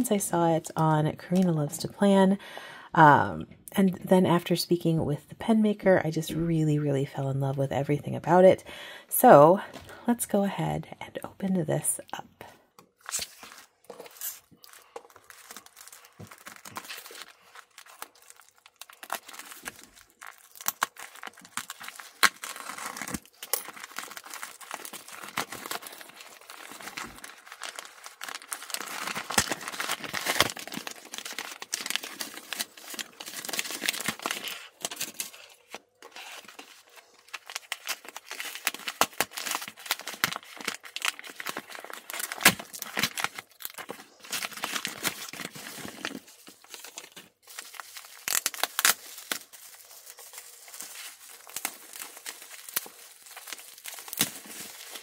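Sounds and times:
plastic crinkling and tearing: 12.8s - 55.0s.

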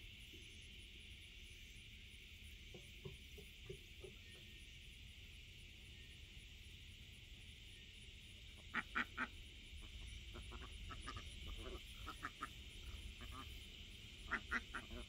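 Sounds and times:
ducks quacking: 8.6s - 15.0s.

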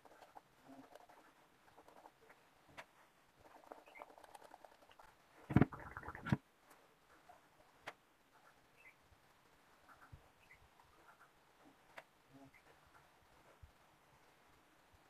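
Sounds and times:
fingers scratching through braids: 0.0s - 6.4s
rubbing thump on microphone: 5.4s - 6.4s.

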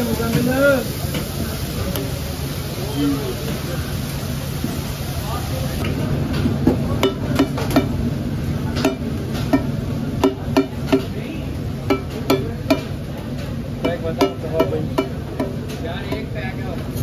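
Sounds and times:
gravy sizzling: 0.0s - 17.0s.

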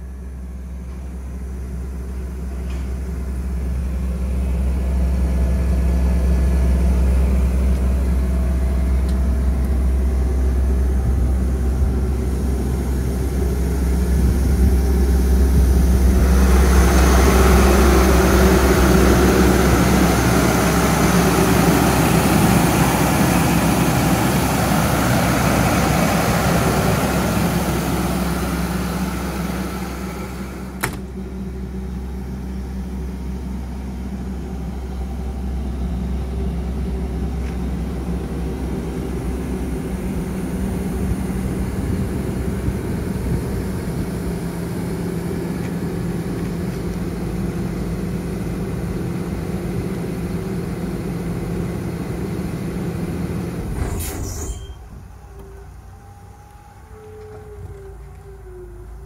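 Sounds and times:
diesel compressor engine humming: 0.0s - 59.0s
door shutting knock: 30.8s - 31.1s.

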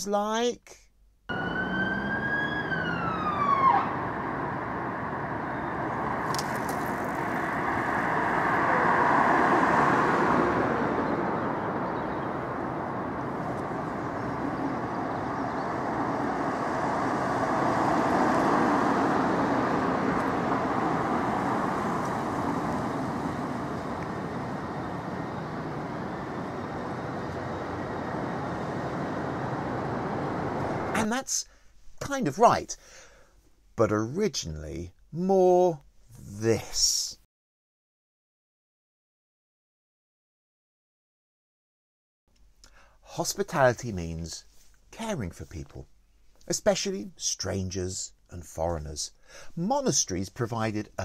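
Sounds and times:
ambulance siren: 1.3s - 6.3s, 7.1s - 30.9s
road traffic: 1.3s - 31.9s.

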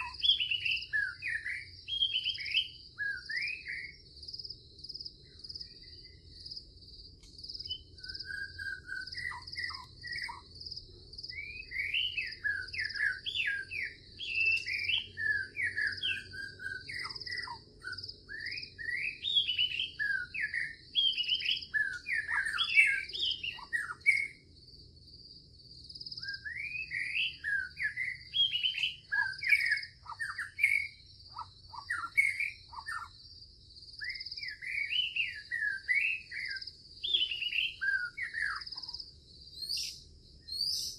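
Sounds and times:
high-pitched insect trill: 0.0s - 40.9s
songbirds chirping: 0.0s - 40.9s.

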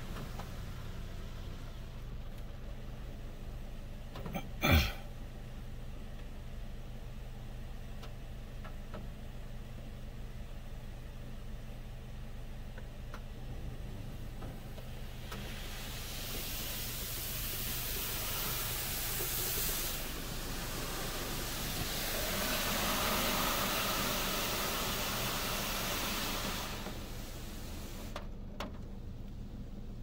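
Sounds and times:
car wash water spraying: 14.6s - 28.2s.

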